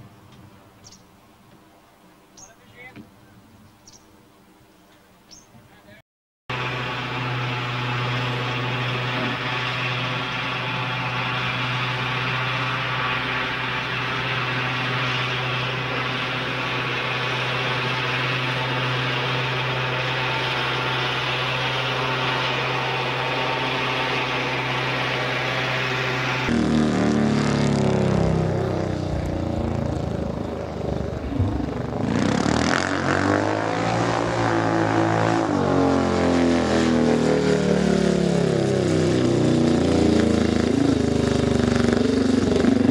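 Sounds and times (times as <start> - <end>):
tractor engine running: 6.5 - 32.9
motorcycle engine revving: 6.5 - 42.9.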